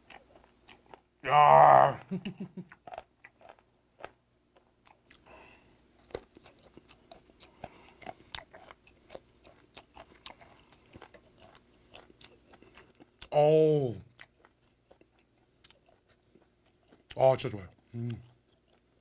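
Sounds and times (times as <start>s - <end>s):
wet chewing crunches: 0.0s - 13.4s, 14.0s - 19.0s
breathy exhale: 5.3s - 5.7s.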